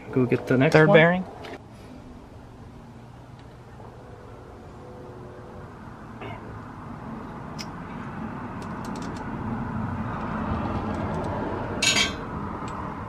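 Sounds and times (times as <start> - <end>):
low vehicle rumble: 0.0 - 13.0.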